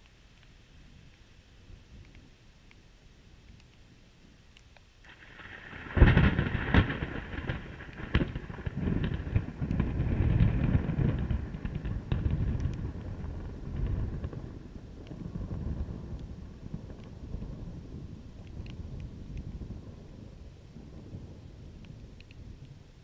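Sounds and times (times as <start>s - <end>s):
thunder crack and rumble: 5.0s - 22.9s.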